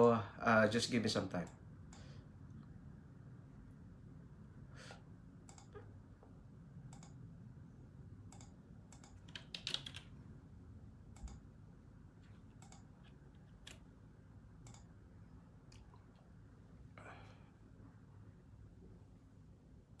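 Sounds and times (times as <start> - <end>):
faint low room hum: 0.0 - 20.0
computer keyboard key clicks: 8.3 - 10.1.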